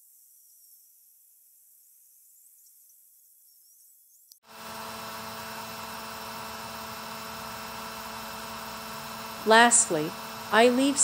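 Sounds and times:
router spindle cutting metal: 4.5 - 11.0.

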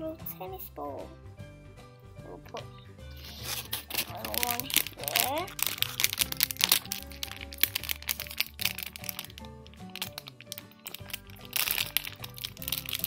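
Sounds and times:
background music with sustained notes: 0.0 - 13.0
plastic bag crinkling: 3.2 - 13.0.

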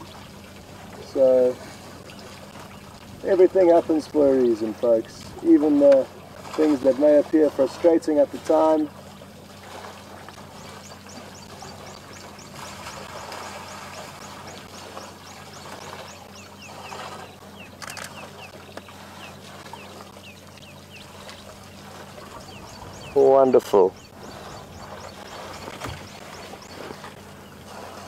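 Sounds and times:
low steady hum: 0.0 - 28.0
bird chirping: 10.6 - 27.6.

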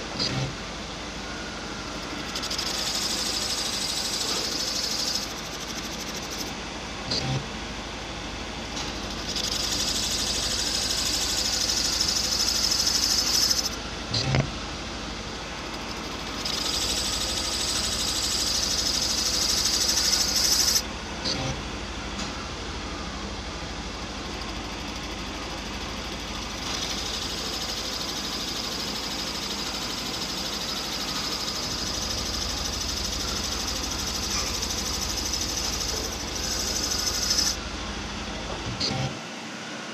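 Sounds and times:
machine motor hum: 0.0 - 39.7
high hissing cutting sound: 2.1 - 6.6, 8.9 - 13.8, 15.7 - 20.8, 26.6 - 37.6.

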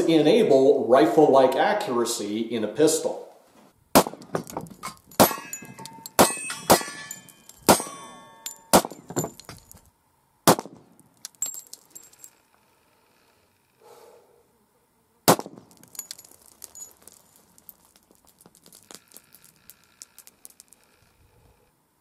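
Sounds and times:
handgun shots: 4.0 - 4.4, 10.5 - 10.8, 15.3 - 15.8
ringing metallic clinks: 4.4 - 9.8, 11.2 - 12.4, 15.8 - 18.0.

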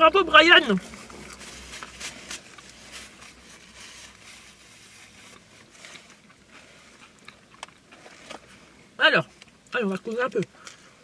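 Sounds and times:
paper wrappers crackling: 0.3 - 7.2.

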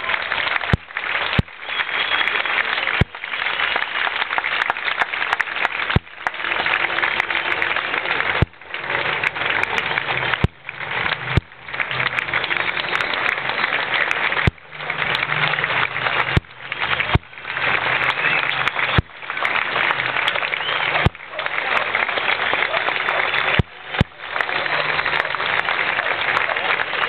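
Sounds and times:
crowd applauding: 0.0 - 27.0.

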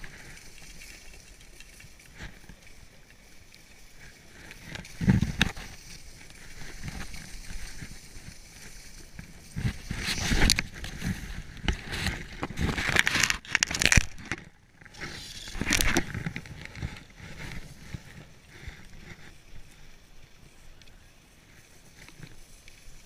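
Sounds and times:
skis scraping over snow: 0.0 - 13.6, 14.8 - 23.0
wind rumbling on microphone: 4.0 - 19.5.

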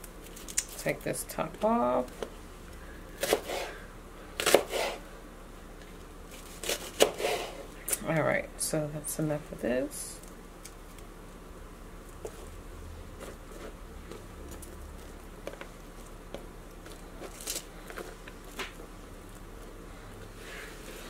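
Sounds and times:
onion rings crackling apart: 0.0 - 1.0, 10.1 - 12.3, 13.2 - 19.8.

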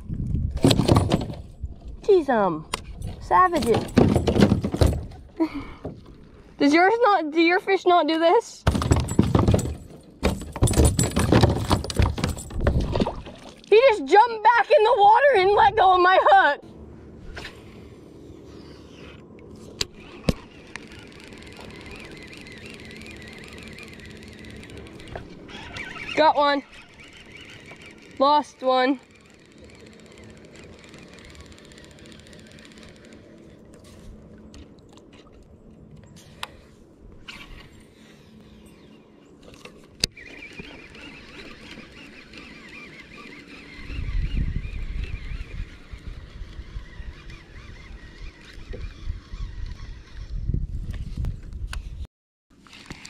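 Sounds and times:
reel whirring and ticking: 18.8 - 36.6, 37.3 - 50.4
sharp reel clicks: 29.0 - 33.4.

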